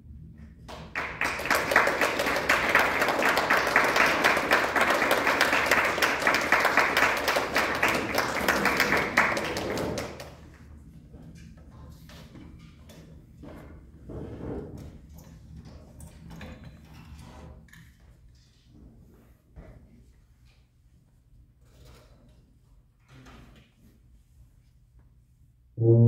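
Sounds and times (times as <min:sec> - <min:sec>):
audience applauding: 0:00.9 - 0:10.4.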